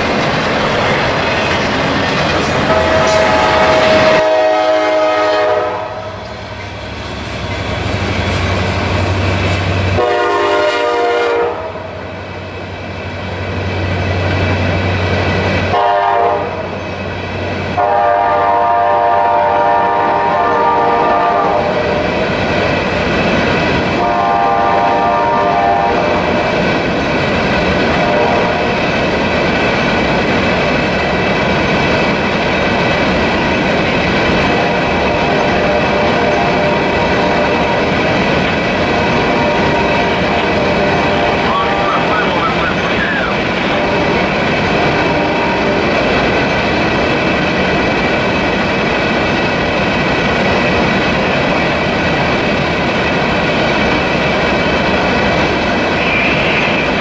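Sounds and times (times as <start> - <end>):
train wheels clacking on rails: 0.0 - 11.1, 19.3 - 57.0
locomotive air horn blasts: 2.7 - 6.2, 10.0 - 11.9, 15.7 - 16.7, 17.8 - 21.9, 24.0 - 26.3, 28.0 - 28.7, 38.9 - 42.1, 43.7 - 44.2, 45.0 - 45.9.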